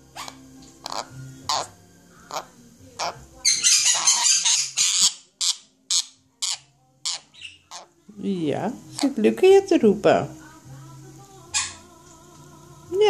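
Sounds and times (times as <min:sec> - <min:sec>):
parrot squawks: 0:00.1 - 0:07.9, 0:11.5 - 0:11.9
parrot screeching: 0:00.2 - 0:07.9, 0:11.5 - 0:11.8.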